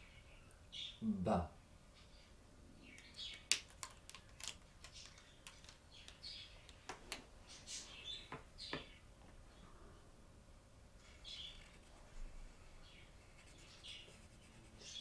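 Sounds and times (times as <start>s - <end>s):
marker squeaking on whiteboard: 13.2s - 15.0s.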